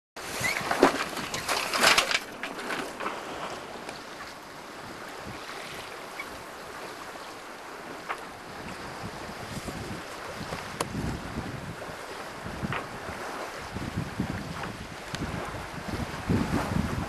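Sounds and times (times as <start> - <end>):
water washing along hull: 0.2 - 17.0
wind buffeting microphone: 2.4 - 17.0.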